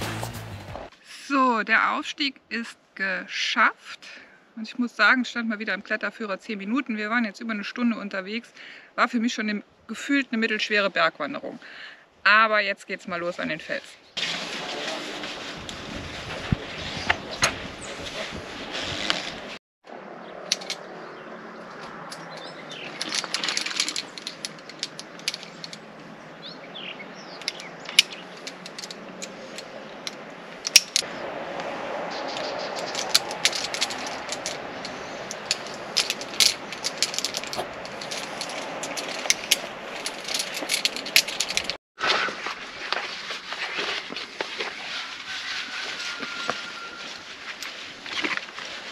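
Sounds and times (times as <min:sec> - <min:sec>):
metal carabiners clinking: 0:20.4 - 0:20.9, 0:21.8 - 0:26.6, 0:27.2 - 0:31.1, 0:32.3 - 0:41.8.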